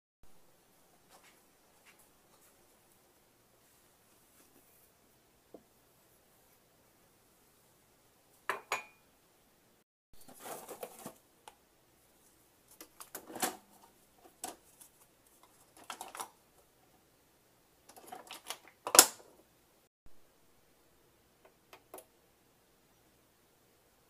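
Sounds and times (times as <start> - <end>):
mug and coffee maker clatter: 8.5 - 9.0, 15.7 - 16.4, 17.9 - 19.3.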